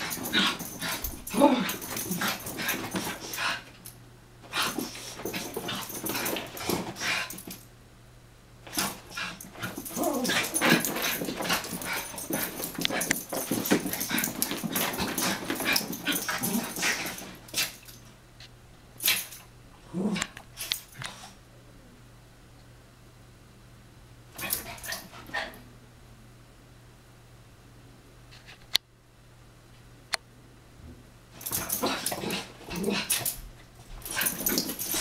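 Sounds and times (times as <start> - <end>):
dogs play-fighting: 0.0 - 7.6, 8.6 - 18.1, 19.0 - 21.4, 24.4 - 25.6, 31.4 - 35.0
dogs scuffling: 0.0 - 7.6, 8.7 - 18.0, 31.4 - 35.0.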